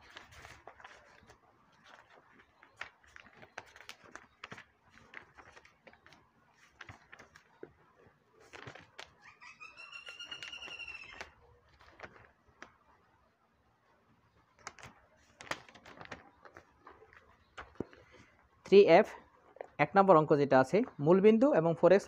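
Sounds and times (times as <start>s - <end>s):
pages being turned: 0.0s - 12.8s, 14.5s - 18.4s
animal call: 9.2s - 11.4s.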